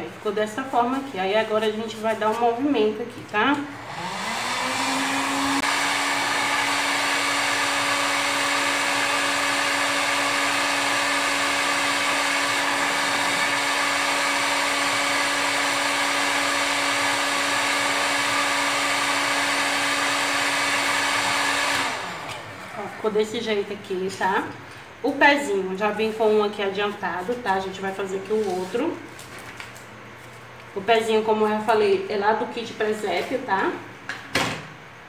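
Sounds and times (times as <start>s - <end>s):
hot-air blower motor hum: 2.2s - 28.2s.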